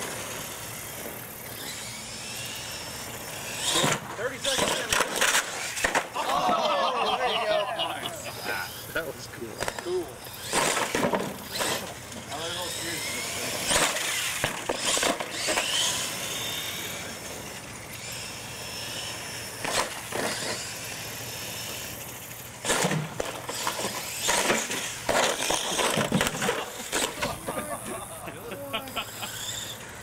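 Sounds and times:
toy truck motor: 0.0s - 6.4s, 7.0s - 30.0s
toy truck clattering on landing: 22.6s - 27.6s.

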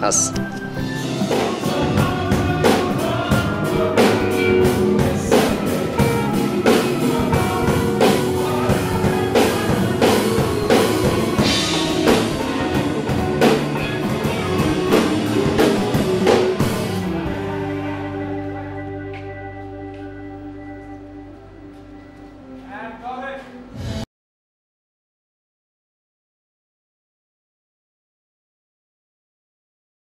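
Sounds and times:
drum kit beat: 0.0s - 18.2s
electric guitar: 0.0s - 22.7s
held keyboard chords: 0.0s - 24.0s.

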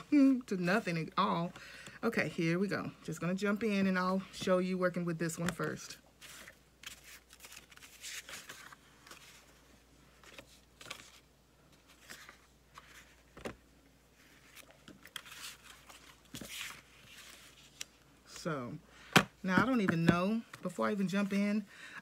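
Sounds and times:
paper rustling and sliding: 6.2s - 13.6s, 14.2s - 17.9s.

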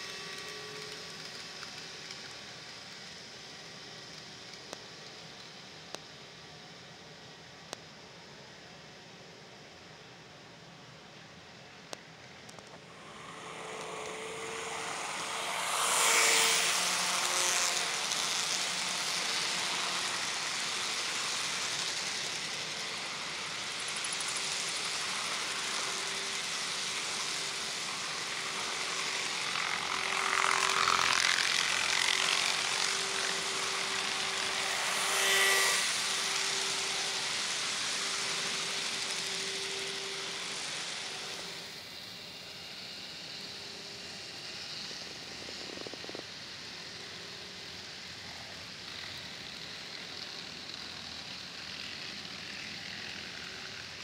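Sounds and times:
model train wheels rattling on track: 0.0s - 5.9s, 12.4s - 41.7s, 44.4s - 54.0s
motor whine: 12.6s - 54.0s.

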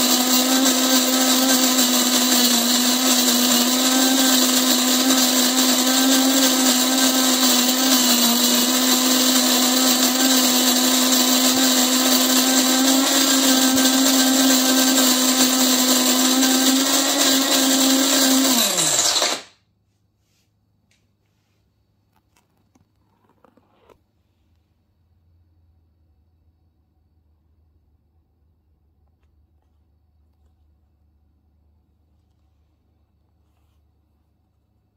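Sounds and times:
coffee beans grinding: 0.0s - 19.5s
coffee grinder motor whine: 0.0s - 19.5s.

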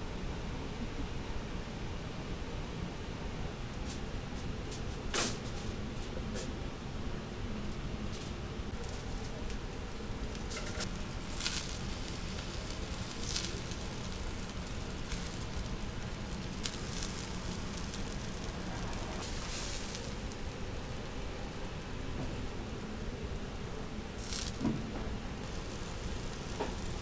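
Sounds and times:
chicken skewers sizzling: 8.7s - 27.0s.

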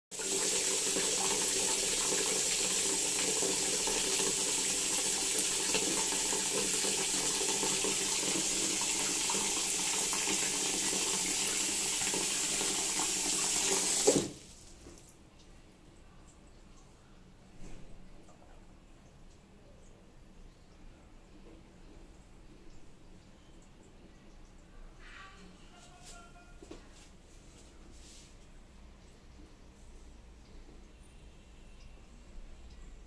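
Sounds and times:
tap water splashing in basin: 0.2s - 15.1s.

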